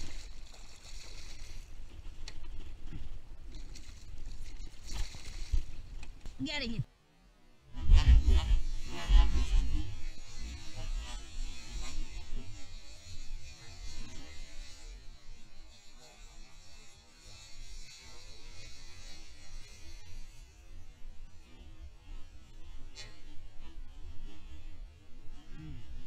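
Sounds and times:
fish splashing in water: 0.0s - 2.4s, 3.4s - 6.3s
wind rumble on microphone: 7.7s - 14.8s.

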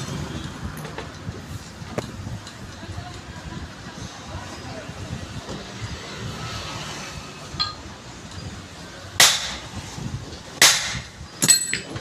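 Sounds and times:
hammer striking steel punch: 9.2s - 9.7s, 10.6s - 11.9s.

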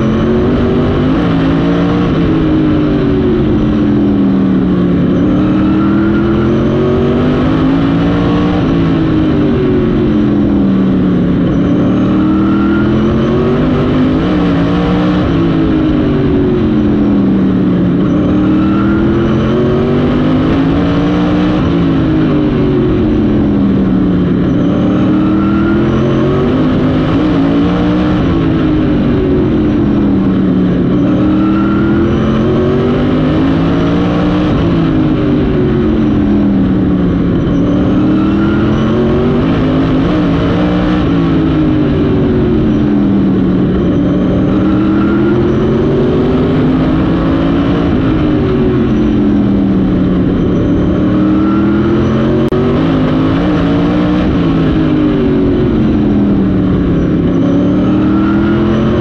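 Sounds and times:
race car engine: 0.0s - 59.0s.

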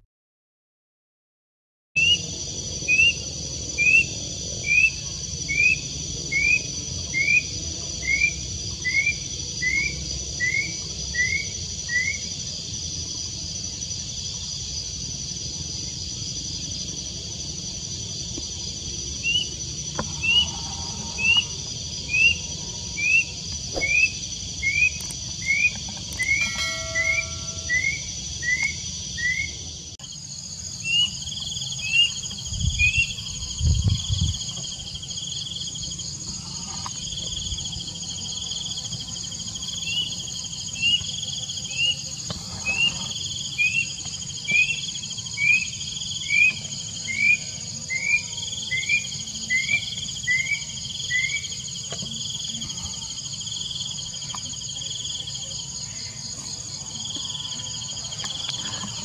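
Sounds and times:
high insect chorus: 2.0s - 59.0s
cuckoo rising whistles: 23.0s - 29.6s.

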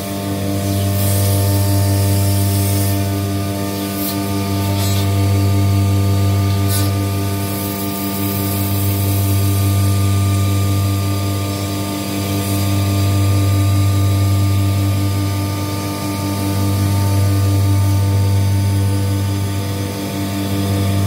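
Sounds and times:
router spindle milling plastic: 0.0s - 14.4s.

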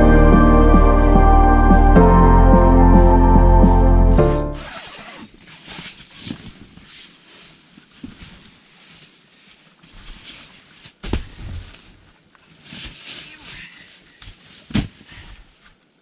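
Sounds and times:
rustling of bags and bedding: 4.2s - 16.0s.

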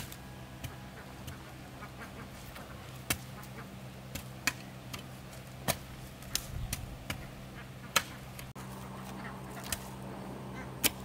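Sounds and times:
digging tool striking stony soil: 2.4s - 3.4s, 4.1s - 7.2s, 10.8s - 11.0s.

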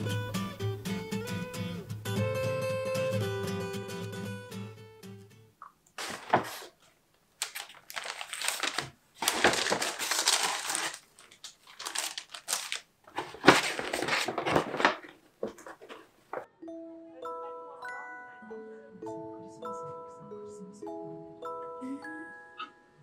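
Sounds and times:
paper bag rustling: 6.0s - 6.8s, 7.4s - 16.5s.

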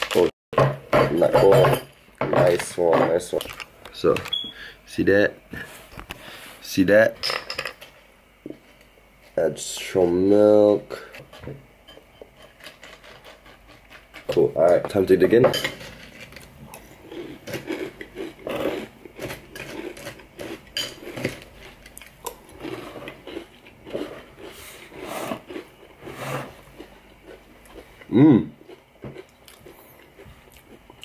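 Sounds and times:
person chewing cereal: 12.4s - 14.4s, 16.1s - 31.0s
person humming: 28.1s - 28.6s.

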